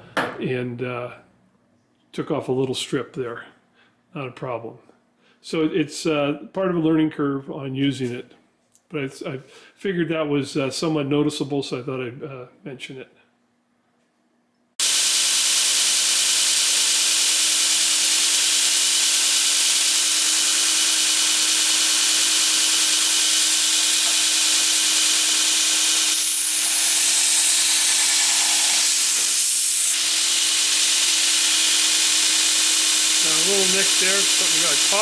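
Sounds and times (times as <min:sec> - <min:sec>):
belt grinder hissing: 0:14.8 - 0:35.0
motor hum: 0:14.8 - 0:35.0.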